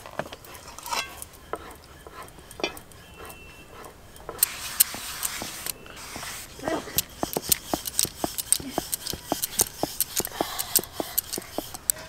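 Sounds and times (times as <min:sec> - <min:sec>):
sharp clicks: 0:06.9 - 0:12.0.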